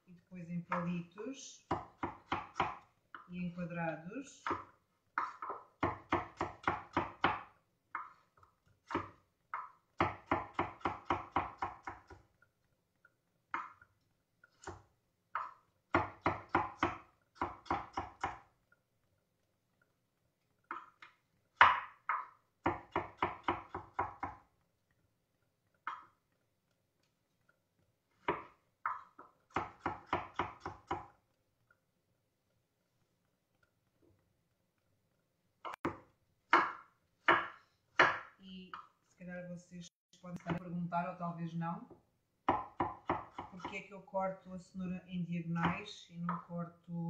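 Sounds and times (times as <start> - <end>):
knife chopping on wooden board: 1.7 - 3.3, 4.4 - 8.2, 8.8 - 12.3, 14.6 - 18.5, 21.6 - 24.4, 28.2 - 31.2, 35.6 - 38.4, 42.4 - 43.7.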